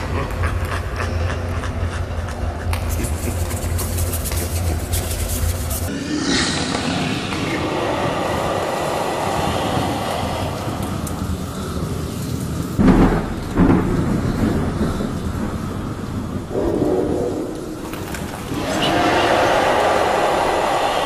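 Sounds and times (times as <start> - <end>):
rain-like rushing noise: 2.9 - 21.0
low thunder rumbling: 6.2 - 20.5
loud low thunder booms: 12.8 - 18.4.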